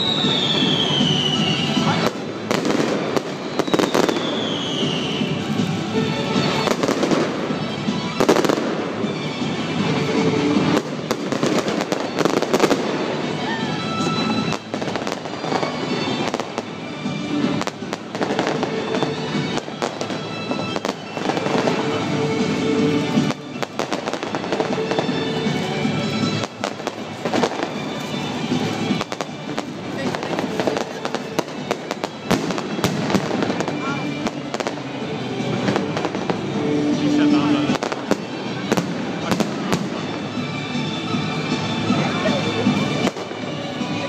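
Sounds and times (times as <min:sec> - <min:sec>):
falling firework whistle: 0:00.0 - 0:05.4
fireworks bangs and crackling: 0:00.0 - 0:44.0.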